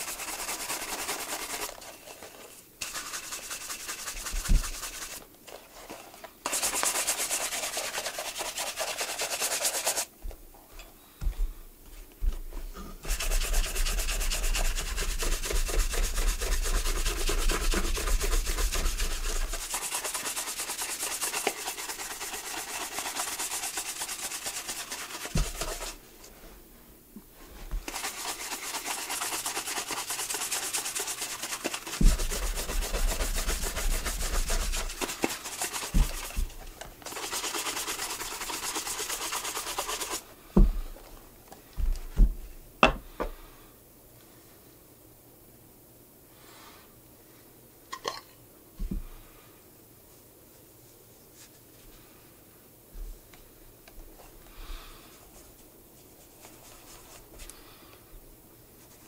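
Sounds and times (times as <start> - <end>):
rubbing on a leather shoe: 0.0 - 5.2, 5.8 - 10.1, 13.0 - 26.0, 27.8 - 40.2, 55.3 - 57.5.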